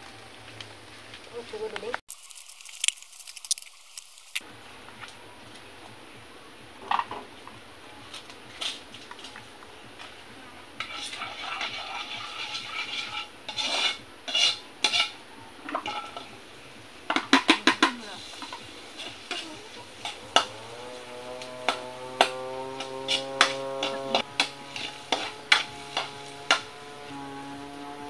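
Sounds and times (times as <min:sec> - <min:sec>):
metal utensil scraping in pan: 0:10.8 - 0:16.4, 0:17.1 - 0:27.0
utensil tapping pan: 0:17.1 - 0:20.6, 0:21.4 - 0:26.7.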